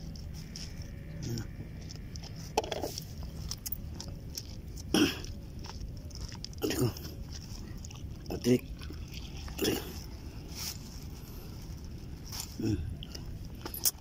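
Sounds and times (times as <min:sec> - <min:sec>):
low background hum: 0:00.0 - 0:14.0
person coughing: 0:04.9 - 0:05.3
person making vocal sounds: 0:09.6 - 0:10.0, 0:12.5 - 0:13.2.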